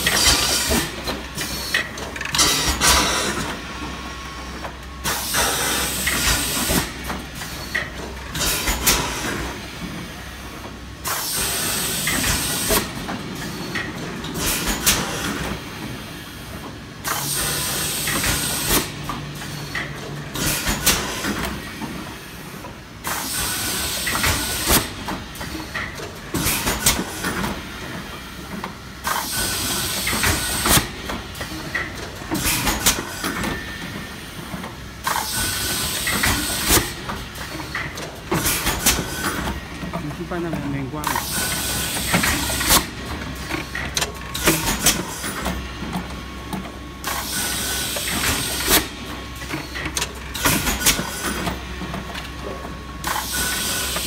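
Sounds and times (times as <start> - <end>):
pneumatic mechanism clicks: 0.0 - 3.6, 28.5 - 33.6, 34.5 - 39.6, 41.0 - 52.3.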